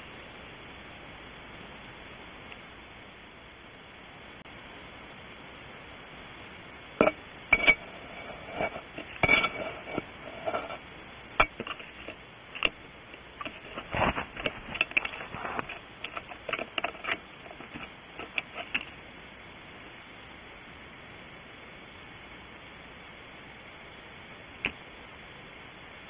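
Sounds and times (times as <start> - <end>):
steady hiss: 0.0 - 26.0
bird scuffling inside nest: 11.4 - 19.0.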